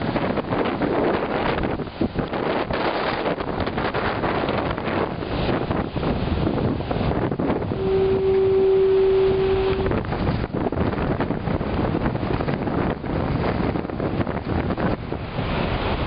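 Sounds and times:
surf breaking on rocks: 0:00.0 - 0:16.0
wind buffeting microphone: 0:00.0 - 0:16.0
foghorn blast: 0:07.7 - 0:10.1.

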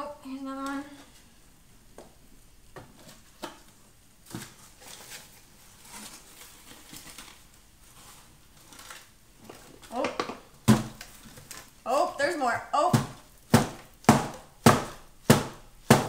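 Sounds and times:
soft cardboard rustling: 0:00.6 - 0:10.0.

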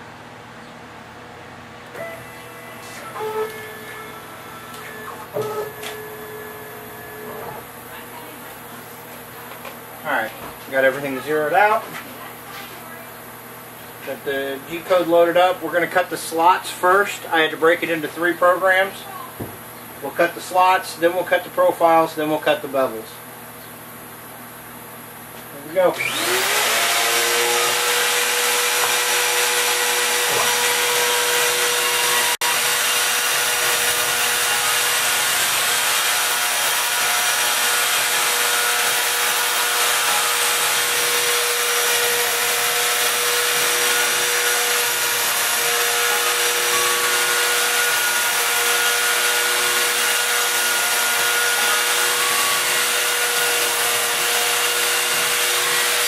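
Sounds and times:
router spindle whine: 0:01.9 - 0:07.7, 0:25.9 - 0:56.0.

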